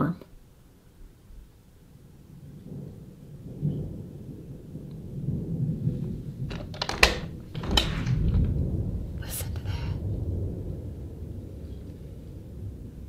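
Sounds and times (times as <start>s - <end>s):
rolling thunder: 1.8s - 13.0s
sharp knocks: 6.5s - 8.6s.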